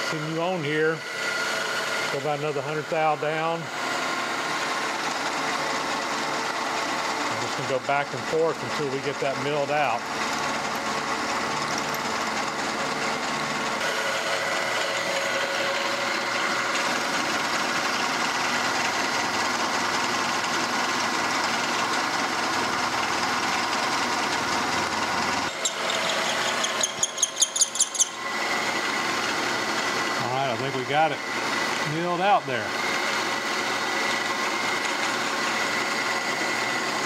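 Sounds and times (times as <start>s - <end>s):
milling machine cutting steel: 0.0s - 37.0s
pulsing cutting with squeal: 25.1s - 32.6s.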